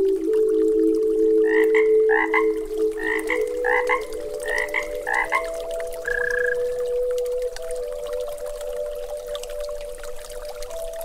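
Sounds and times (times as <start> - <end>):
frog croaking: 1.4 - 6.7.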